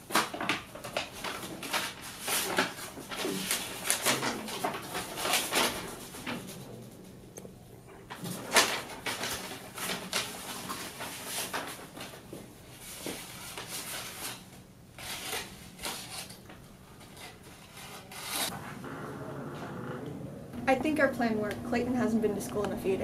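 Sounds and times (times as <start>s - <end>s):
paper rustling: 0.0s - 6.6s, 8.1s - 18.6s.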